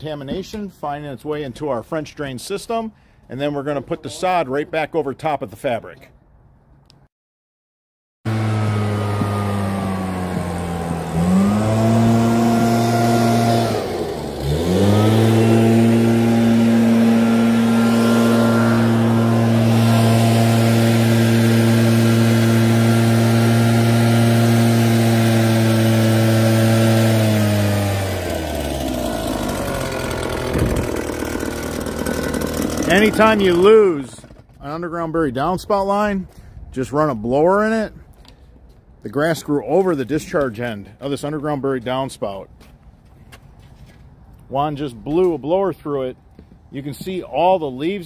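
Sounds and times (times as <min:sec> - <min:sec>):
leaf blower engine running: 0:08.3 - 0:34.6.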